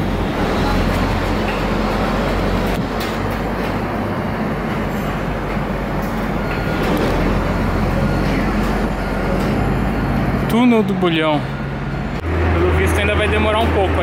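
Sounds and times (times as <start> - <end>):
heavy vehicle engine humming: 0.0 - 14.0
street traffic rumble: 0.0 - 14.0.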